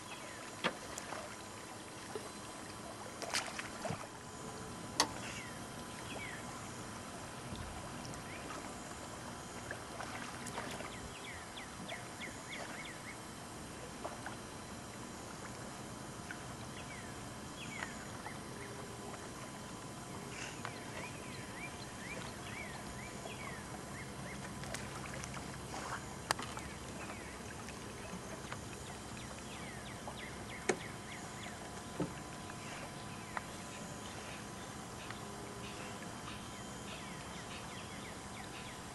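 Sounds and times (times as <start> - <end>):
outdoor background noise: 0.0 - 38.9
birds chirping: 5.1 - 6.8, 10.4 - 13.3, 20.1 - 24.5, 26.2 - 38.9.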